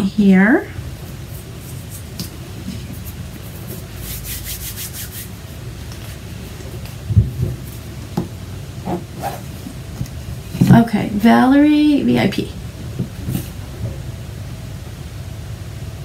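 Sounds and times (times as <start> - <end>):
rubbing and rustling handling noise: 0.8 - 11.2, 12.7 - 14.2
scratchy strokes: 2.7 - 5.4, 8.8 - 9.5.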